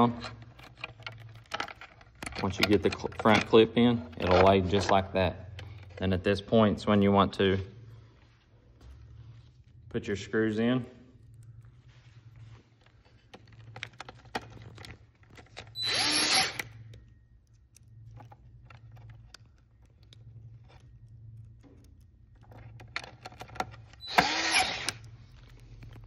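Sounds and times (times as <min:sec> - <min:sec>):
power drill driving screws: 0:15.8 - 0:16.7, 0:24.0 - 0:25.0.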